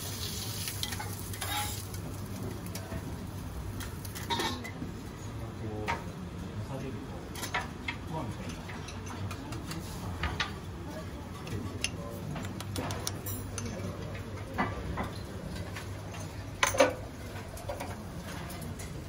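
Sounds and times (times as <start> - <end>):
metal utensils tapping on griddle: 0.6 - 1.9.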